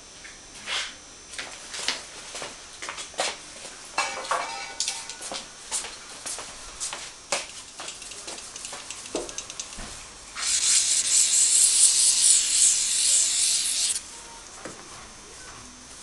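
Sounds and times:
aerosol spray can hissing: 10.4 - 14.0.

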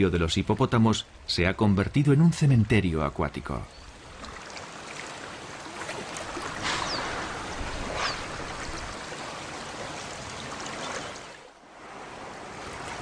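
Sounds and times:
river water flowing: 0.0 - 13.0.

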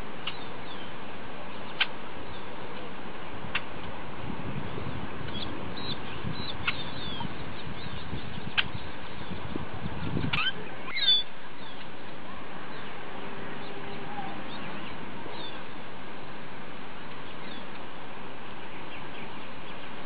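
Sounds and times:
steady background hiss: 0.0 - 20.0
bird chirps: 0.2 - 2.5, 5.3 - 11.9.

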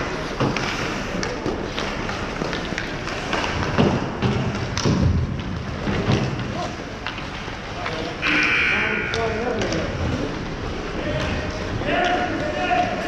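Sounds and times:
hockey stick and puck clicks: 0.4 - 8.0.

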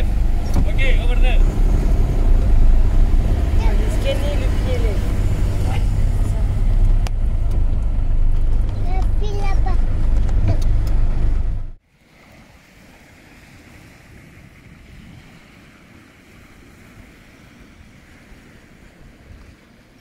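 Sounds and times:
low rumble inside vehicle cab: 0.0 - 11.8
wind on microphone: 1.4 - 20.0
waves washing on pebble beach: 11.9 - 19.8.

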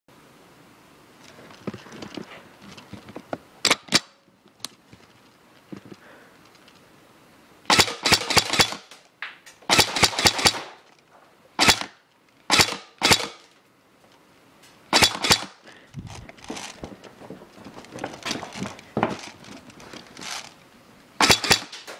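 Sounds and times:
airsoft gun firing: 7.7 - 8.9, 9.7 - 10.8, 11.6 - 13.4, 14.9 - 15.6, 21.2 - 21.9.

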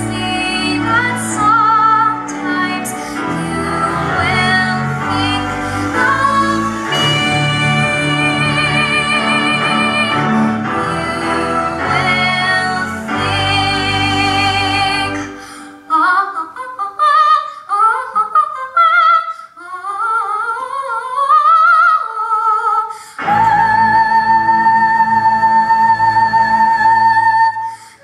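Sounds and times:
girl singing into a microphone: 0.0 - 10.1, 11.0 - 28.0
musical accompaniment: 0.0 - 16.6, 23.1 - 28.0.

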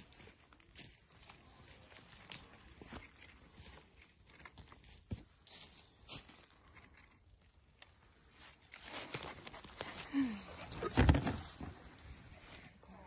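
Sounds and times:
footsteps through dry leaves: 4.8 - 6.7, 8.2 - 10.6.

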